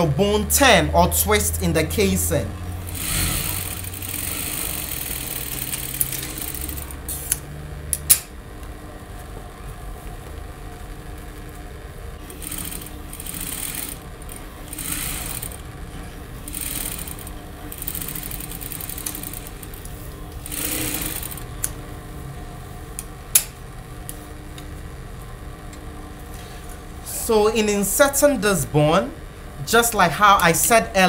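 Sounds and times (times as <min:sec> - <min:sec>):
sewing machine stitching: 0:02.8 - 0:07.0, 0:12.2 - 0:15.7, 0:16.5 - 0:19.8, 0:20.4 - 0:21.5.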